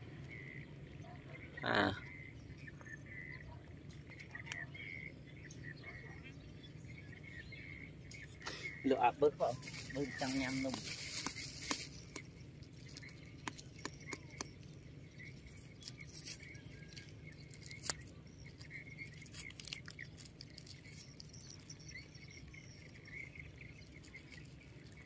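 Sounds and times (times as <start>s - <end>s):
birds chirping: 0.0s - 25.0s.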